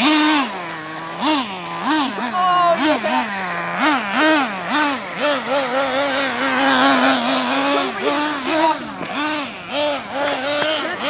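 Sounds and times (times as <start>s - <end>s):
small nitro engine revving: 0.0s - 11.0s.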